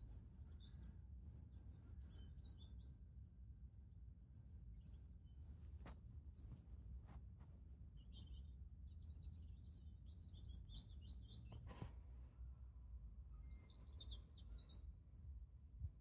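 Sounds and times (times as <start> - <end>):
small birds chirping: 4.4 - 11.8, 13.3 - 14.9.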